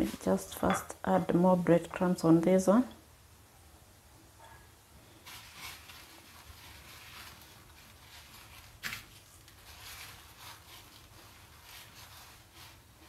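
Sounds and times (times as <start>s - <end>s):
breadcrumbs rustling: 5.1s - 13.0s.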